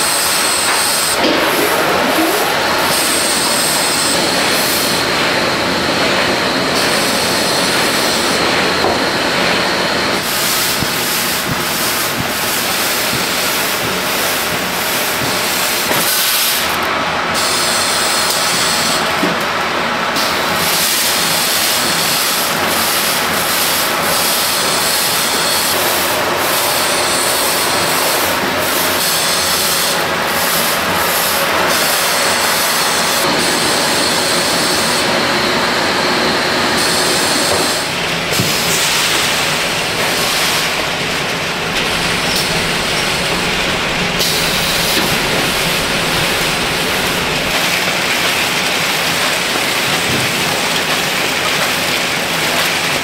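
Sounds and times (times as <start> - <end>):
fryer oil hissing and rushing: 0.0 - 53.0.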